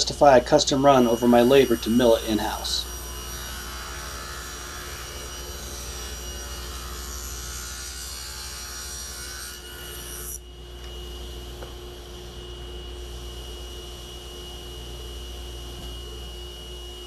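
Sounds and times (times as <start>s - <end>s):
table saw cutting wood: 0.0s - 13.0s
table saw blade running: 0.2s - 10.4s.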